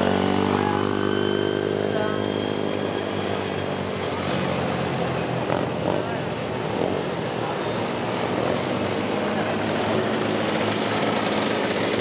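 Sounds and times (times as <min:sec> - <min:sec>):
racing atv engines: 0:00.0 - 0:12.0.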